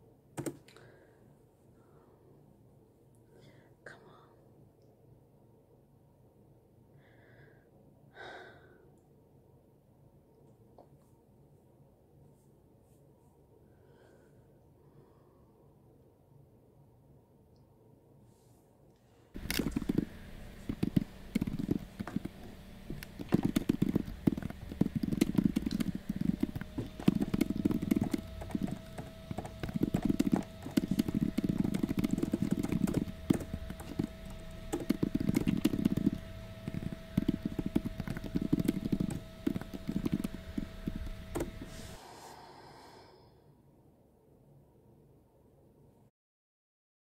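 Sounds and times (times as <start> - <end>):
keyboard key clicks: 0.4 - 0.7, 19.4 - 41.7
steady hum: 19.4 - 44.1.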